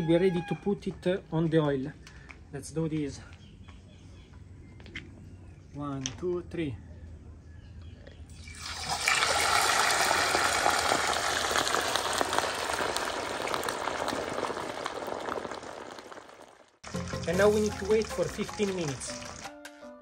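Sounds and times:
oil sizzling loudly: 8.4s - 19.5s.

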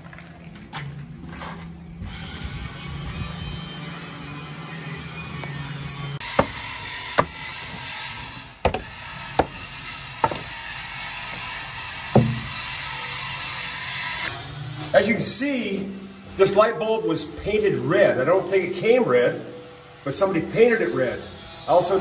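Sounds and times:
steel bar striking steel deck: 12.2s - 12.8s.

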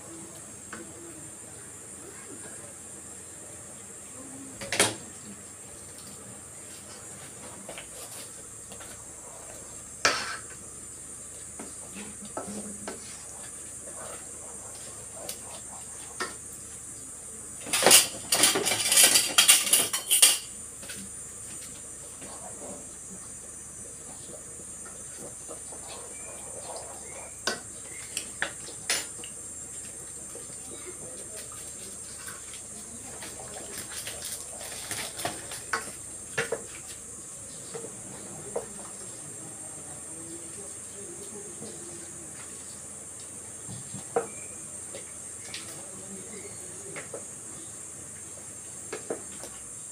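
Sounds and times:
steady high hiss: 0.0s - 49.9s
pots and pans clattering: 17.6s - 20.6s.

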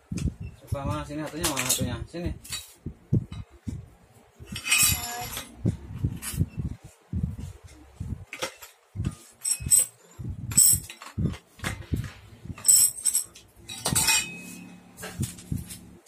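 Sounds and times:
metal parts and tools clinking: 1.2s - 3.5s, 4.5s - 5.6s, 8.3s - 15.9s.

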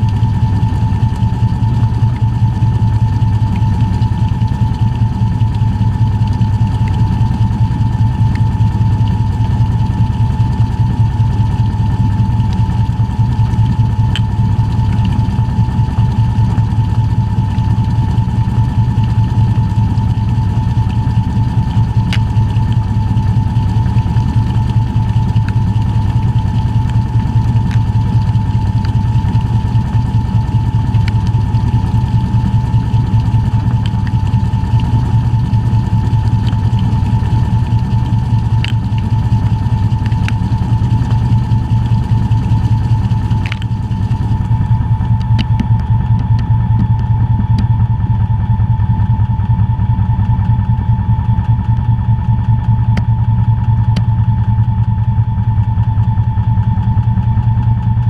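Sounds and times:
steady whine: 0.0s - 58.0s
washing machine motor hum: 0.0s - 58.0s
faint ticks: 14.1s - 15.2s.

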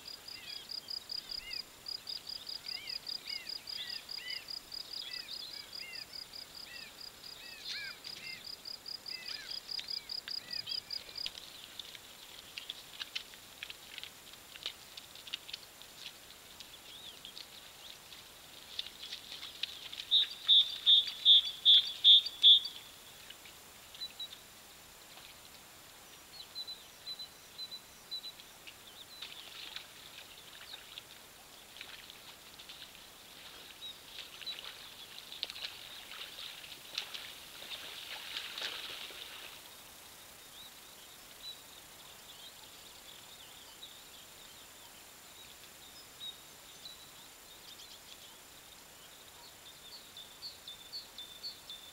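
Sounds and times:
bird chirps: 19.8s - 22.9s.

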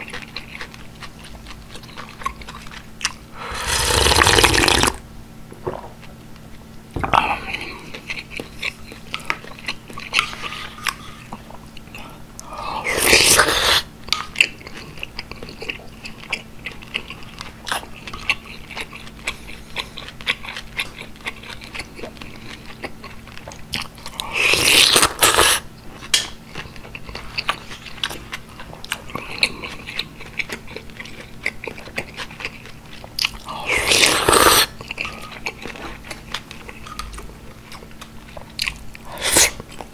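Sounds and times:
person chewing food: 0.0s - 5.0s, 5.6s - 39.9s
loud slurps: 3.4s - 5.0s, 33.6s - 34.7s.

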